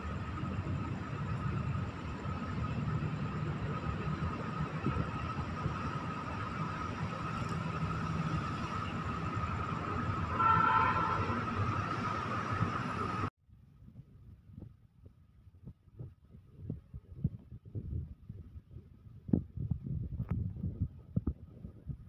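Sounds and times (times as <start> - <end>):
outdoor night background noise: 0.0 - 22.0.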